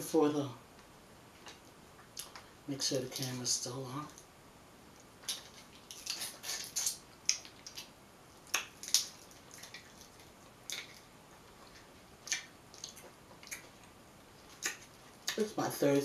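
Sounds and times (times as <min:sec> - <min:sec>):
wet chewing smacks and clicks: 0:01.4 - 0:02.5, 0:05.1 - 0:15.4.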